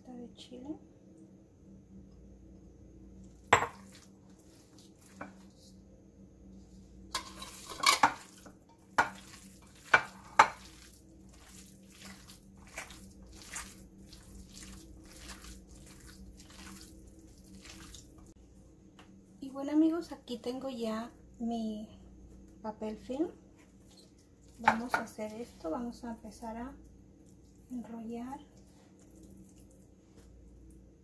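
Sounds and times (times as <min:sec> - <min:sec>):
wet squelching of kneaded meat: 0:09.1 - 0:18.4.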